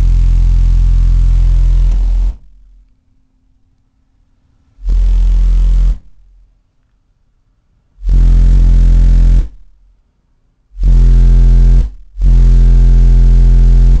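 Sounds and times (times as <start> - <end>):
car subwoofers deep bass blasts: 0.0 - 2.7, 4.8 - 6.4, 8.0 - 9.9, 10.8 - 14.0.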